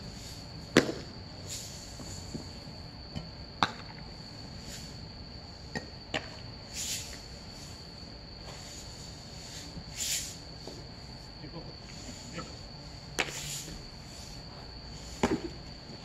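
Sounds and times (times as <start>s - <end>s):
insects trilling: 0.0s - 16.0s
short hissing bursts: 1.4s - 2.8s, 4.2s - 5.7s, 6.6s - 15.8s.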